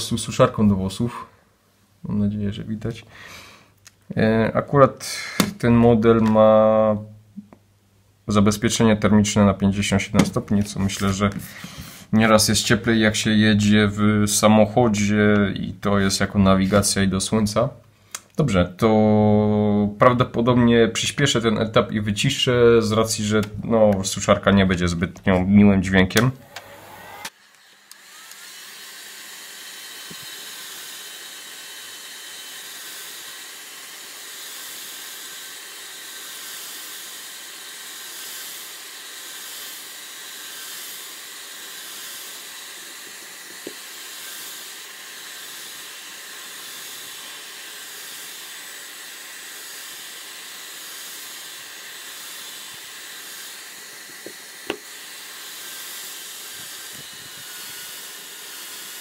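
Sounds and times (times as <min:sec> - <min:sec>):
hair dryer blowing: 0:26.2 - 0:59.0.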